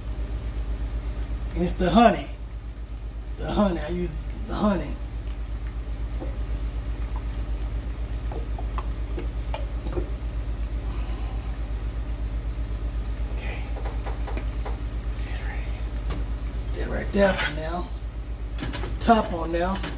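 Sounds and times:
low fluttering hum: 2.3s - 17.2s.

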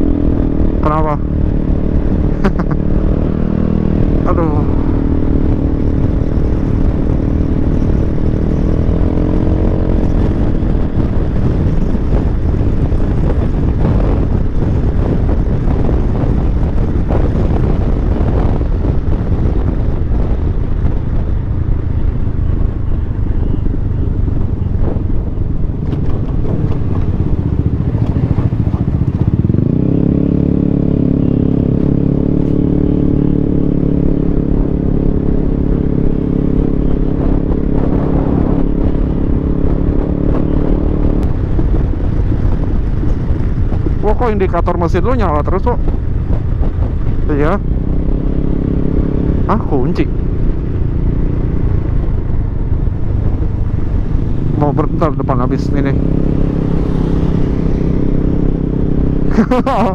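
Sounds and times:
wind on microphone: 0.0s - 59.9s
scooter engine running: 21.5s - 34.0s.

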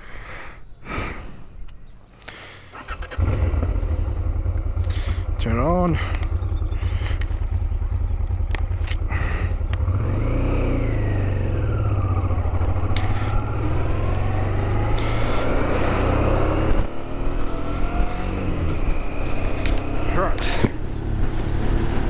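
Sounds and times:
motorcycle engine accelerating: 2.8s - 22.0s.

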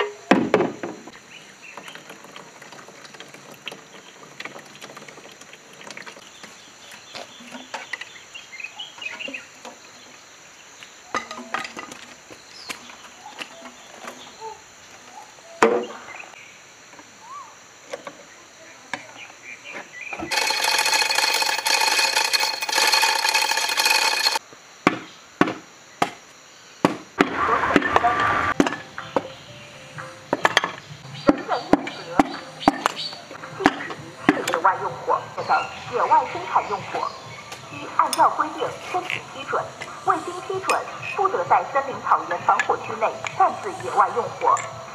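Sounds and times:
metal tools clinking: 20.3s - 24.4s.

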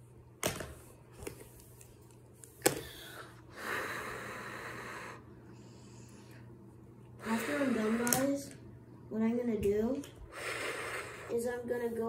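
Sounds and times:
markers clicking and tapping: 8.0s - 8.4s.

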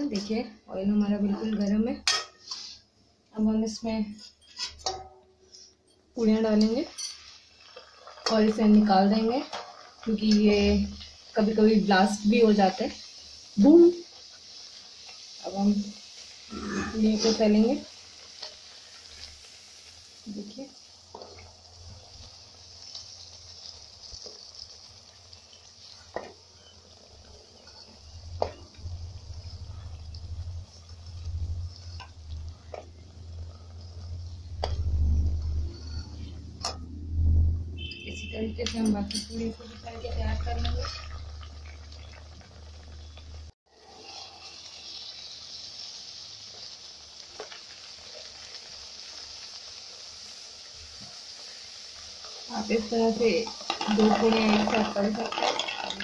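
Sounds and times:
bread deep-frying in hot oil: 0.0s - 56.0s
low rumble: 28.7s - 37.8s.

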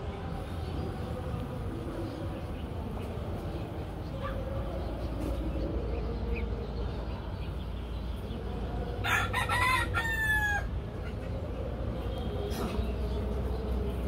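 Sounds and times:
rooster crowing: 9.0s - 10.7s.

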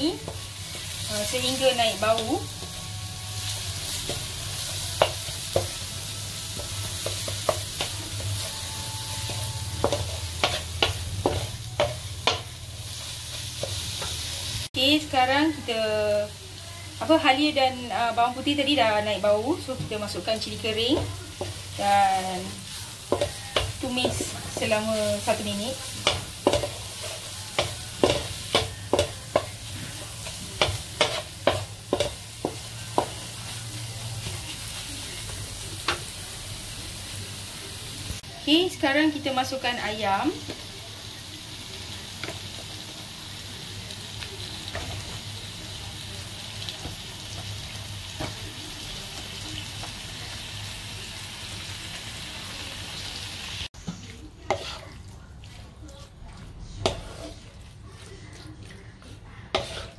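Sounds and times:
food sizzling: 0.0s - 59.9s
spatula scraping a pan: 20.9s - 34.6s, 53.9s - 59.9s.

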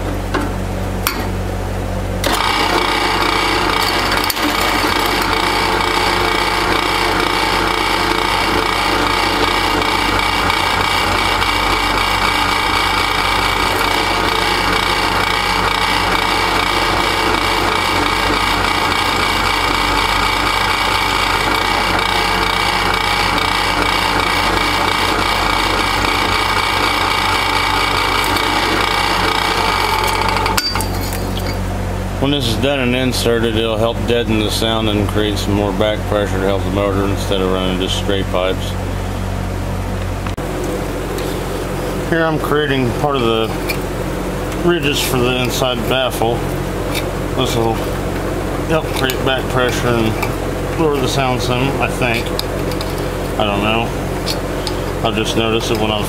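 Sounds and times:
drill press motor hum: 0.0s - 56.0s
drill bit cutting metal: 2.2s - 31.6s, 44.5s - 56.0s.

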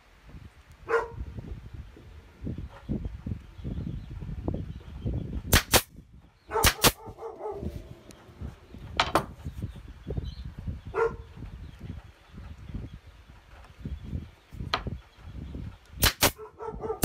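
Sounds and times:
nail gun firing: 5.5s - 5.9s, 6.6s - 7.0s, 16.0s - 16.4s
wooden strips knocking and sliding: 8.9s - 9.6s.

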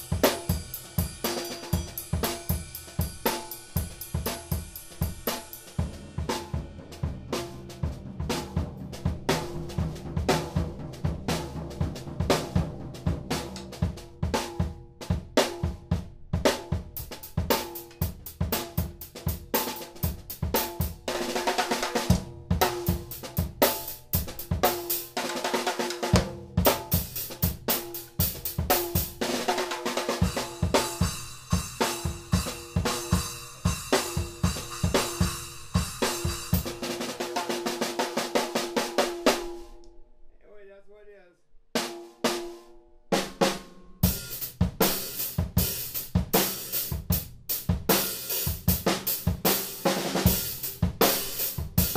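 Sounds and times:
cymbals: 0.0s - 12.6s, 26.6s - 37.5s
bass drum: 0.0s - 25.2s, 26.2s - 37.4s, 44.0s - 51.9s
snare drum crack: 35.9s - 39.8s.

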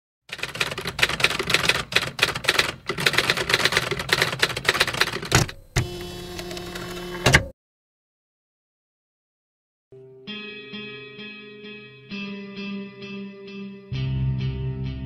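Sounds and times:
typewriter keys clacking: 0.3s - 5.5s.

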